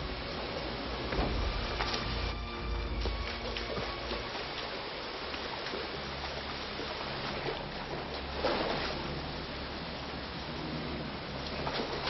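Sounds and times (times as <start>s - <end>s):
water rushing from pipe: 0.0s - 12.0s.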